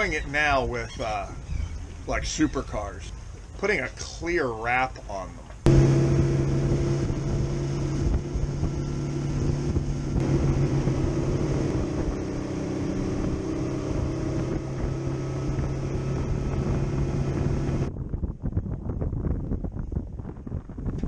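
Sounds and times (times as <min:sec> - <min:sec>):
outboard engine hum: 0:00.0 - 0:03.8, 0:05.5 - 0:18.0
wind buffeting microphone: 0:05.6 - 0:21.0
water rushing past hull: 0:05.7 - 0:17.9.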